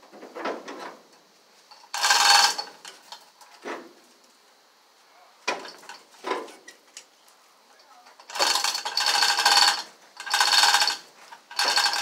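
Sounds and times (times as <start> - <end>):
hoist chain rattling: 1.7 - 3.2, 8.2 - 12.0
loud metallic clatter: 8.3 - 12.0.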